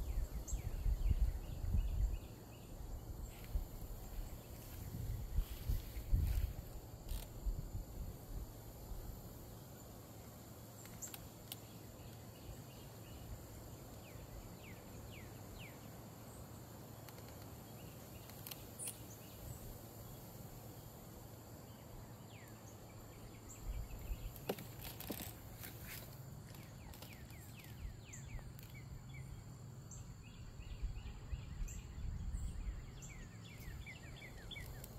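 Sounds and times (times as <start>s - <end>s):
bird chirps: 26.5s - 34.9s.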